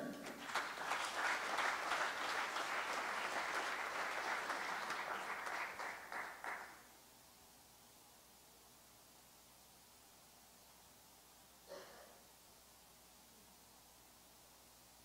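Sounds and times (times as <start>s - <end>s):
congregation applauding: 0.0s - 6.9s.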